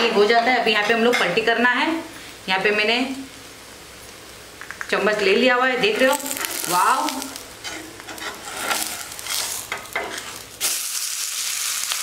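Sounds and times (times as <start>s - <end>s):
oil sizzling: 1.3s - 12.0s
spatula scraping on pan: 5.8s - 10.8s.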